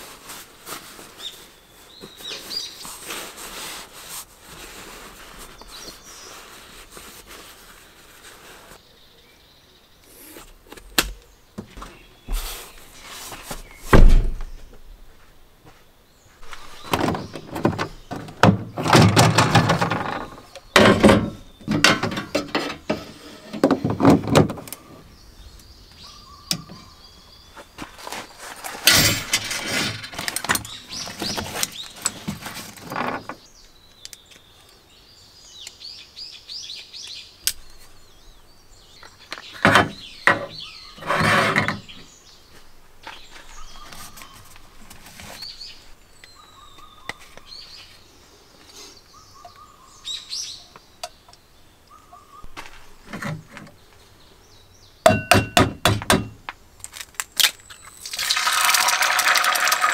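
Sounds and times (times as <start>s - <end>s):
birds chirping: 0.8s - 3.4s, 5.0s - 58.6s
handling noises: 10.1s - 25.1s, 25.9s - 34.8s, 39.0s - 48.0s, 52.4s - 54.1s.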